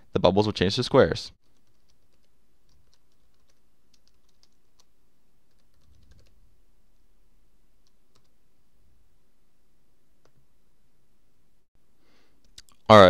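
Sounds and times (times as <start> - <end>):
typing on a keyboard: 1.4 - 4.9, 5.5 - 6.4.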